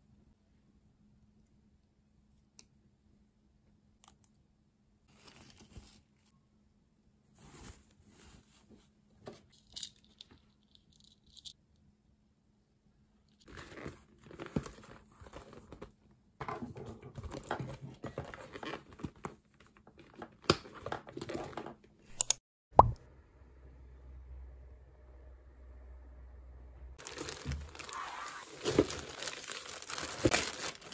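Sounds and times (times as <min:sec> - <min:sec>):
rustling and crinkling of bag: 0:05.1 - 0:06.3, 0:07.3 - 0:09.6, 0:13.4 - 0:16.0, 0:16.8 - 0:21.6, 0:27.0 - 0:30.9.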